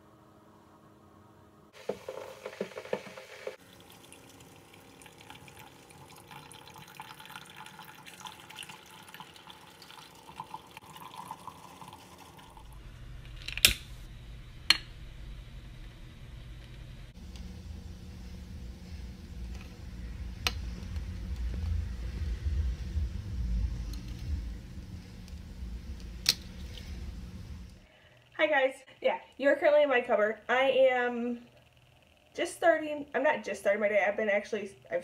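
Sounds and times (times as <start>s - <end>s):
coffee trickling into mug: 1.8s - 12.8s
utility lighter clicks: 13.5s - 13.9s.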